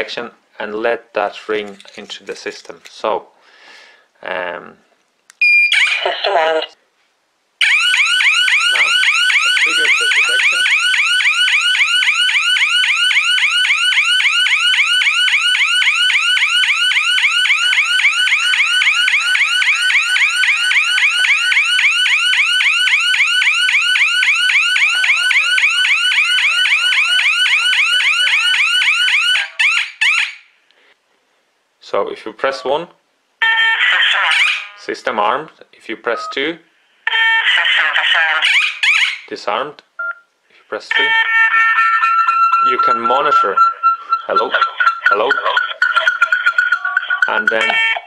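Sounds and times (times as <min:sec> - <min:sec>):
alarm siren sweeping tone: 0:07.6 - 0:30.3, 0:40.9 - 0:48.0.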